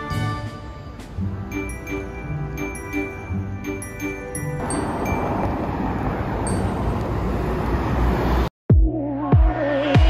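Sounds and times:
cars driving past: 0:00.6 - 0:08.5.

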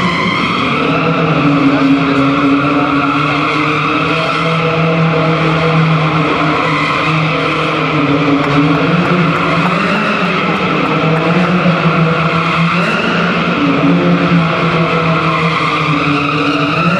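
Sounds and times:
engine at high revs: 0:00.8 - 0:16.9.

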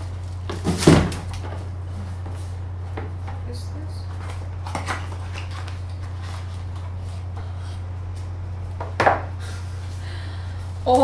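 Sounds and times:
steady low hum: 0:00.0 - 0:11.0
packaging rustling: 0:04.1 - 0:07.3.

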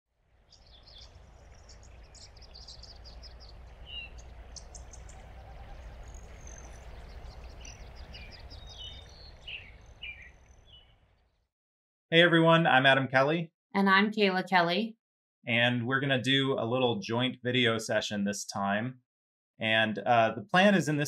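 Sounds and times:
low outdoor rumble: 0:00.4 - 0:10.7
small birds chirping: 0:00.4 - 0:11.4.

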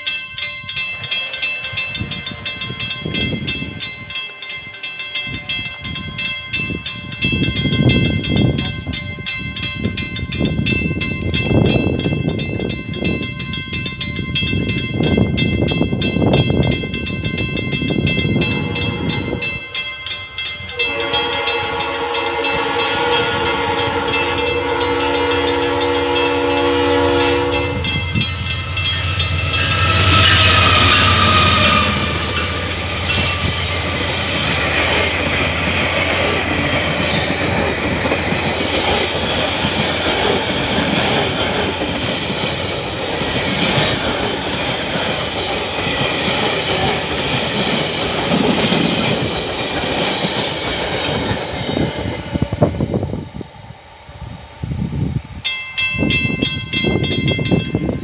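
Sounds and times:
crossing warning bell dinging: 0:00.0 - 0:58.0
low train rumbling: 0:00.0 - 0:58.0
locomotive horn chord: 0:18.4 - 0:19.6, 0:20.7 - 0:33.6.

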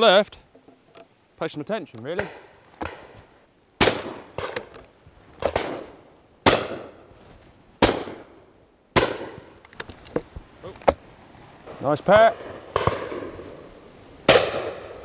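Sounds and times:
shotgun shots echoing: 0:02.2 - 0:03.2, 0:03.8 - 0:04.7, 0:05.4 - 0:07.0, 0:07.8 - 0:08.4, 0:09.0 - 0:09.6, 0:12.3 - 0:13.5, 0:14.3 - 0:15.0
faint distant shots: 0:05.4 - 0:07.0, 0:12.3 - 0:13.6, 0:14.3 - 0:15.0.

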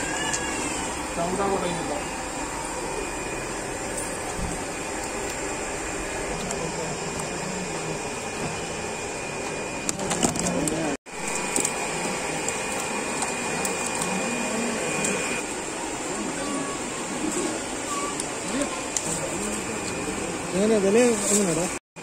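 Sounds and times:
air pump whirring: 0:00.0 - 0:21.8.

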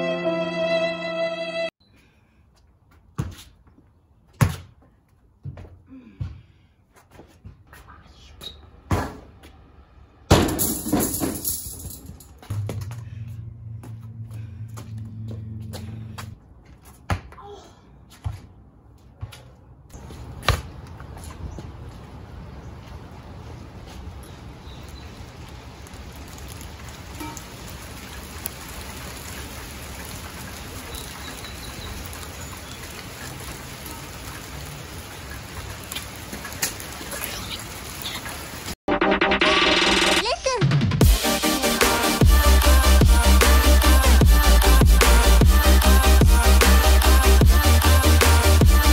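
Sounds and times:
rain hissing: 0:22.0 - 0:38.8, 0:41.2 - 0:48.9
background music with low bass: 0:40.8 - 0:48.9.

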